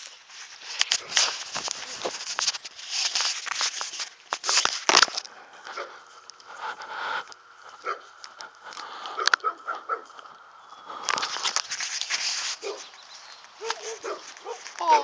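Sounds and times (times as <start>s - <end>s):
camera handling noise: 0.0s - 5.3s, 11.0s - 14.8s
footsteps in grass: 0.0s - 15.0s.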